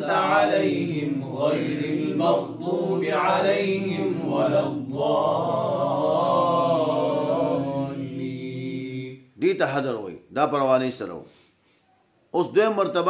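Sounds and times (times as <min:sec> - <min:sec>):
man chanting recitation: 0:00.0 - 0:08.2.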